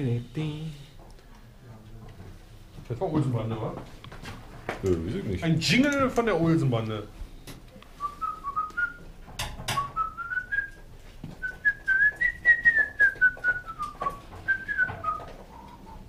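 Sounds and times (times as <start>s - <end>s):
man whistling a tune: 8.0s - 9.0s, 9.7s - 10.8s, 11.4s - 15.7s.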